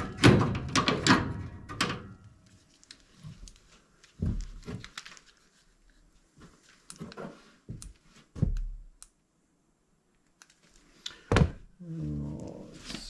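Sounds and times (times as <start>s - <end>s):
dull thumps and knocks: 7.7s - 8.8s
low drawn-out vocal sound: 11.8s - 13.0s.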